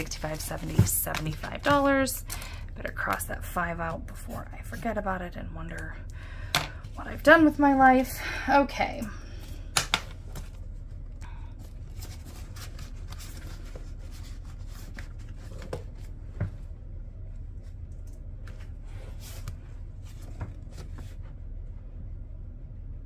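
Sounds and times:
plastic and paper rustling: 0.0 - 2.4, 11.6 - 16.2
low steady hum: 0.0 - 23.0.

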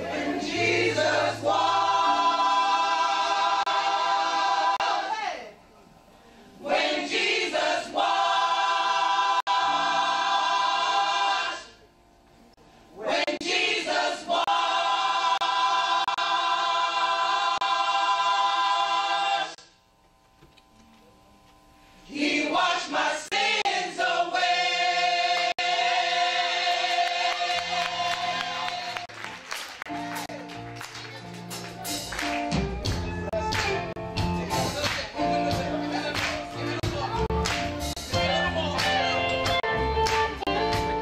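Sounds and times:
gospel choir singing: 0.0 - 5.4, 6.6 - 11.8, 12.9 - 19.6, 22.0 - 29.3, 33.1 - 41.0.

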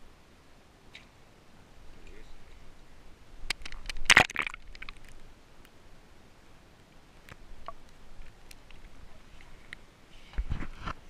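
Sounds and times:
water dripping and splashing: 3.4 - 5.2.

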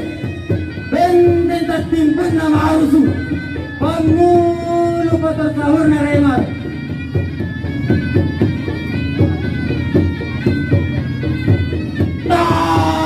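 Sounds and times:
percussion beat: 0.0 - 13.0
wind instrument long notes: 6.4 - 13.0.

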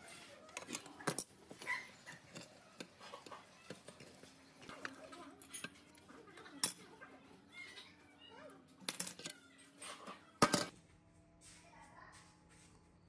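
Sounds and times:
metal clinks and knocks on workbench: 10.4 - 10.7.

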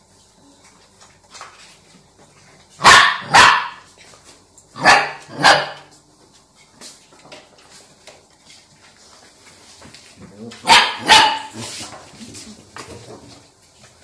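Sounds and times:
puppy barking: 2.8 - 3.9, 4.8 - 5.9, 10.6 - 11.7.

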